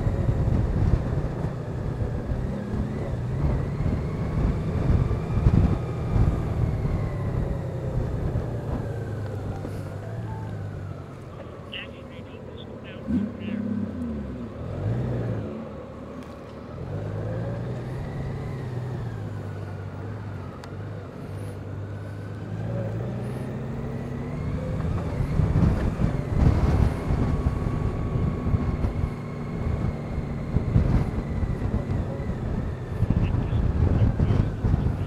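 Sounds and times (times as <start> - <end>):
wind buffeting microphone: 0.0 - 11.1, 24.8 - 35.0.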